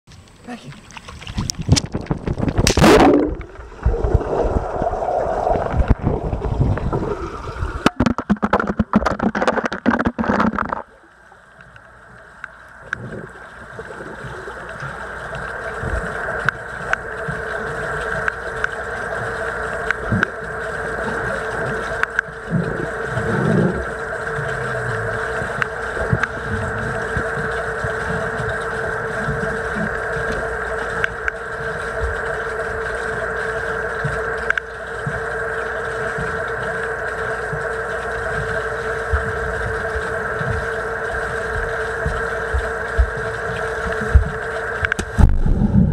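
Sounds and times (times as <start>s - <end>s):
muffled underwater hum: 0.1s - 45.9s
water splashing and bubbling: 0.1s - 45.9s
soft low underwater thumps: 1.3s - 10.8s, 39.1s - 45.9s.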